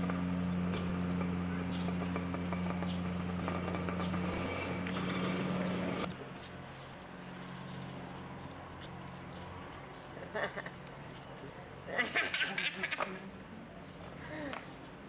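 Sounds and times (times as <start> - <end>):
motor humming: 0.0 - 6.1
outdoor noise: 0.0 - 15.0.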